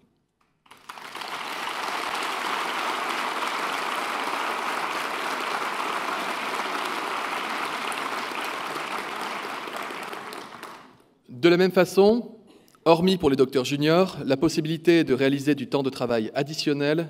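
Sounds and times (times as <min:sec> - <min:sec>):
audience applauding: 0:00.5 - 0:11.0.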